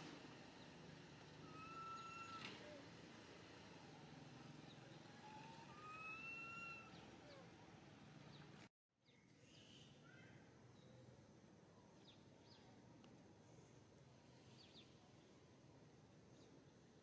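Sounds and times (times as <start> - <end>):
faint outdoor ambience: 0.0 - 17.0
whistled animal calls: 1.4 - 2.6, 5.2 - 7.5.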